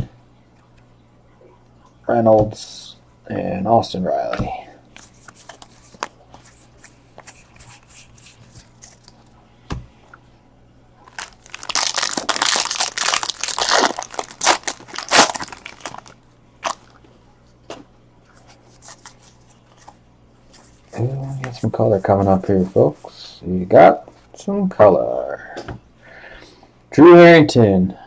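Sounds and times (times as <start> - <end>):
foil wrapper tearing and crinkling: 11.1 - 16.9.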